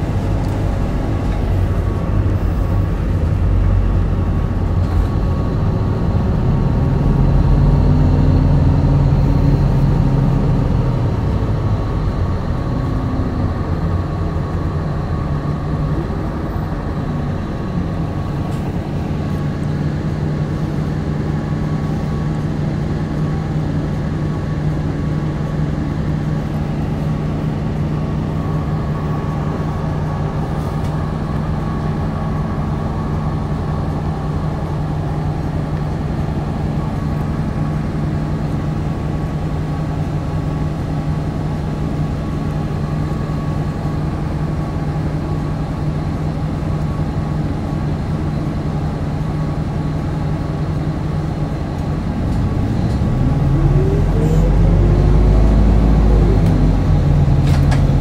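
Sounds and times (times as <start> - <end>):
bus diesel engine revving: 0.0 - 58.0.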